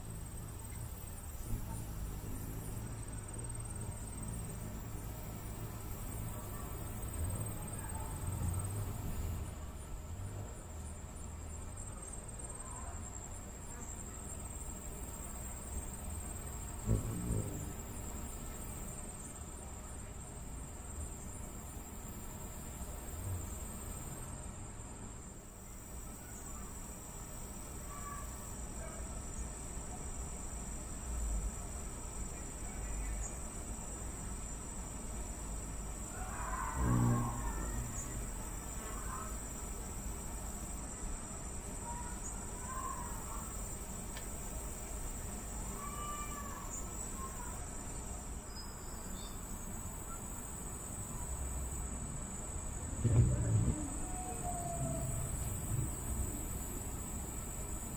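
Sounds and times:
hummingbird wings humming: 0.0s - 24.9s, 29.3s - 57.9s
high-pitched insect trilling: 16.6s - 19.0s.

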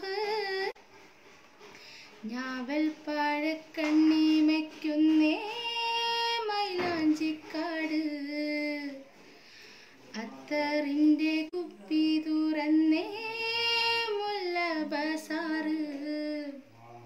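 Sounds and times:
person singing unaccompanied: 0.0s - 0.8s, 2.2s - 9.1s, 10.1s - 16.7s.

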